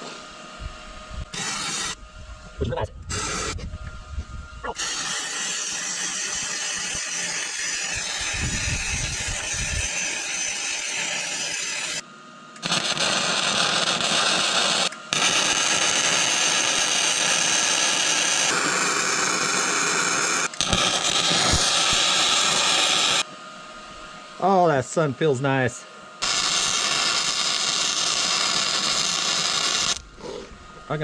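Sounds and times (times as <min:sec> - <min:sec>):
welding arc hissing: 0:01.3 - 0:02.0, 0:03.1 - 0:03.6, 0:04.6 - 0:12.0, 0:12.6 - 0:23.3, 0:26.2 - 0:31.0.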